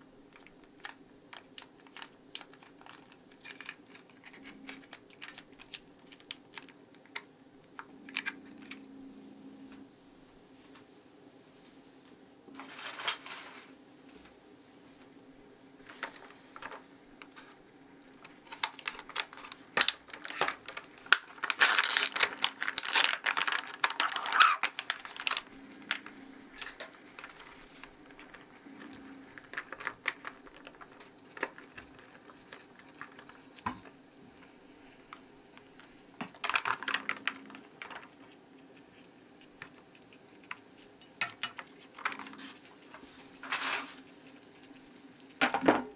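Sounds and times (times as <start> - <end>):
plastic bag crinkling: 0.3 - 7.2, 18.2 - 33.8, 34.4 - 38.3, 41.5 - 45.9.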